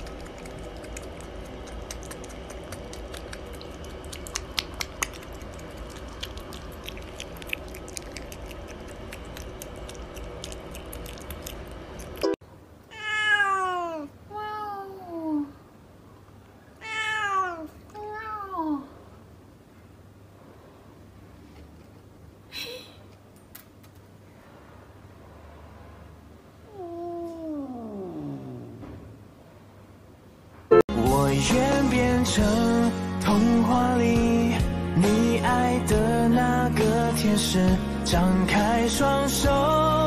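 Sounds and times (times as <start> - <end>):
steady low hum: 0.0 - 12.9
cat meowing: 12.9 - 15.1, 16.8 - 18.5.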